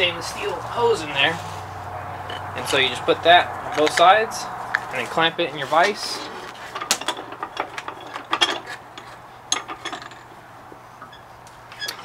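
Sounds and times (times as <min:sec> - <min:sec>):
vise clicking and knocking: 0:06.5 - 0:10.3.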